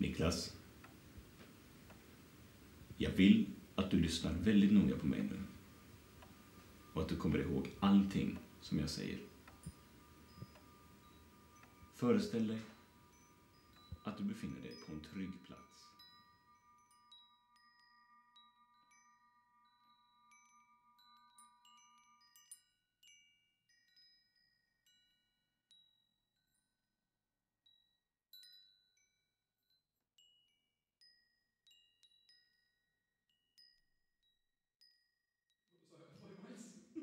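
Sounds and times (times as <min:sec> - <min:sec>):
bell-like struck notes: 0:03.0 - 0:26.5.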